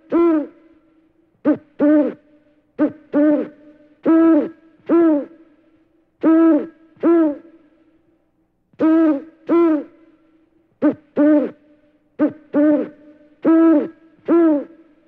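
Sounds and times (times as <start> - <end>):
owl hooting: 0.0 - 0.8, 1.4 - 5.5, 6.2 - 7.6, 8.8 - 10.2, 10.8 - 15.0.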